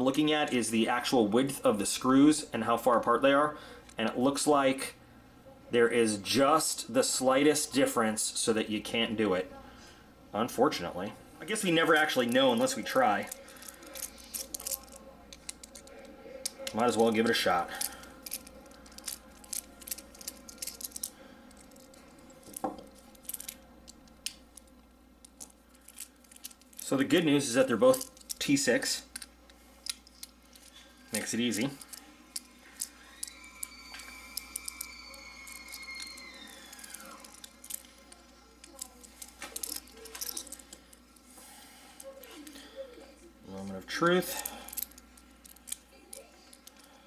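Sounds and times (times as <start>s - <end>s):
faint high tone sliding down: 32.9s - 38.5s.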